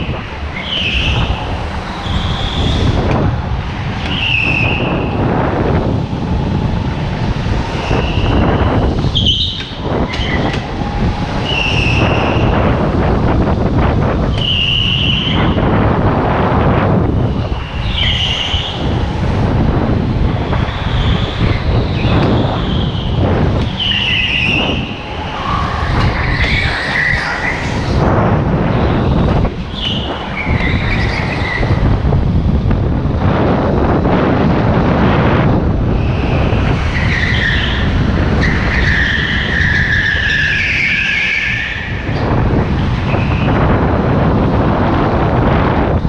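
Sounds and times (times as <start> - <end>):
tyre squeals: 0.0 - 3.0, 4.0 - 5.2, 7.8 - 10.6, 11.4 - 12.6, 14.3 - 15.6, 17.2 - 19.1, 20.3 - 28.0, 29.0 - 31.8, 35.9 - 42.3
go-kart engine rumble: 0.0 - 46.0.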